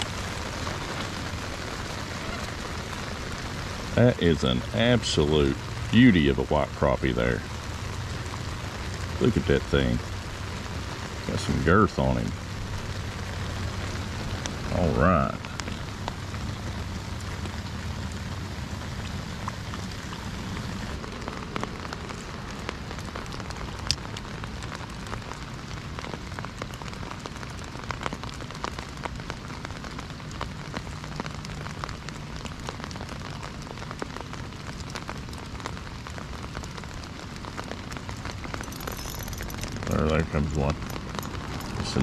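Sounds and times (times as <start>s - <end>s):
rain falling on lake water: 0.0s - 42.0s.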